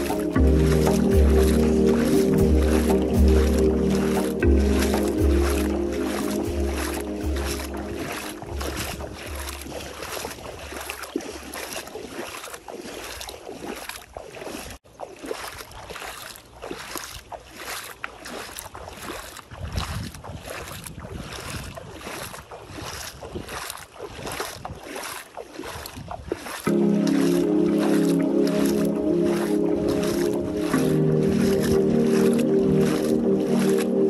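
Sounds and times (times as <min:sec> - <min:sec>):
wind rumble on microphone: 0:00.0 - 0:11.7, 0:18.7 - 0:25.0, 0:25.6 - 0:26.6
feet wading through water: 0:00.0 - 0:34.0.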